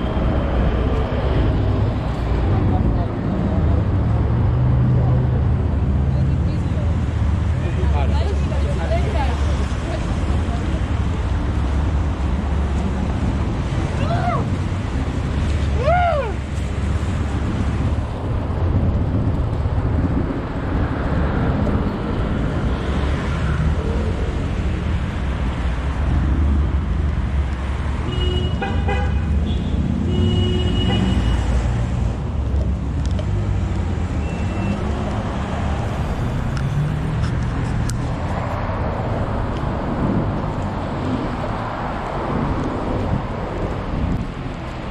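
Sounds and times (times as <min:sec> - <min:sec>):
city traffic passing: 0:00.0 - 0:44.9
car horn beeping: 0:28.0 - 0:31.5.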